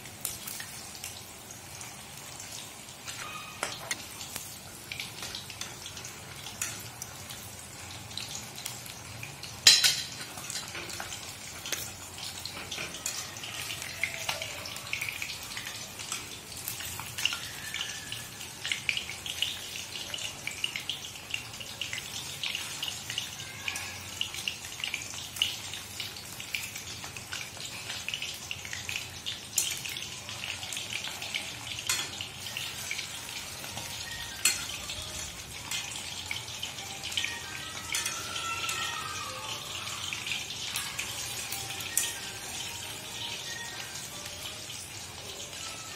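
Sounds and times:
fish sizzling in hot oil: 0.0 - 45.9
metal utensil knocking on pan: 9.6 - 10.2.

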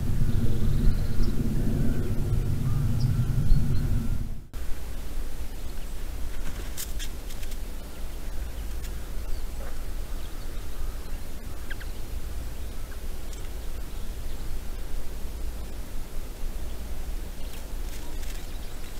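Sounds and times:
low outdoor rumble: 0.0 - 18.9
faint clicks: 6.7 - 9.0, 13.3 - 13.6.

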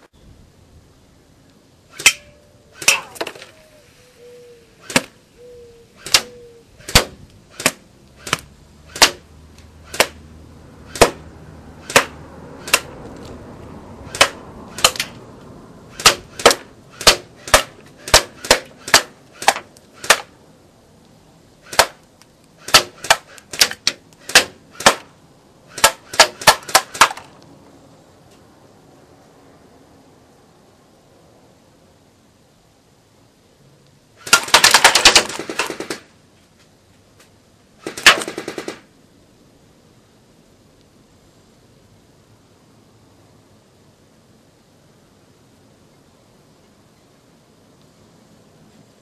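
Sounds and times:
airsoft gun shots: 1.9 - 3.4, 4.8 - 5.2, 6.0 - 10.2, 10.9 - 11.2, 11.8 - 12.9, 14.1 - 15.1, 15.9 - 20.3, 21.6 - 22.0, 22.6 - 25.1, 25.7 - 27.3, 34.2 - 36.1, 37.8 - 38.9.

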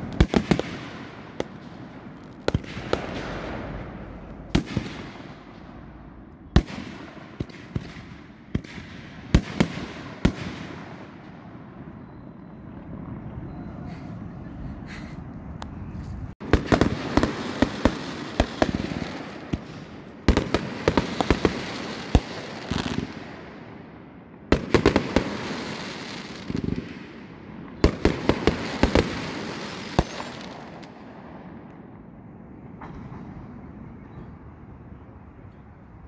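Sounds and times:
fireworks bangs and crackle: 0.0 - 14.3, 16.1 - 34.4.

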